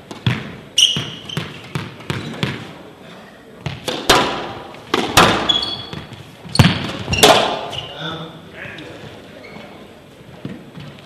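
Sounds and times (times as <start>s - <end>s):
court shoes squeaking: 0.0s - 8.0s, 8.8s - 11.0s
squash ball cracking off walls: 3.6s - 7.7s.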